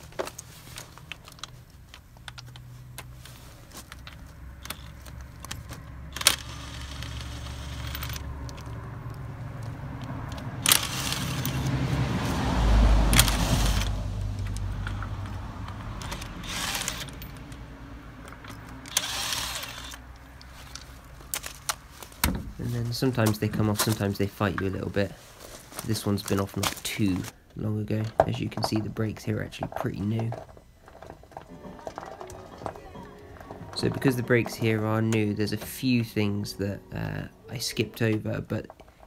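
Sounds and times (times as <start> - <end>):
impact gun spinning: 16.0 - 17.3, 18.9 - 20.0.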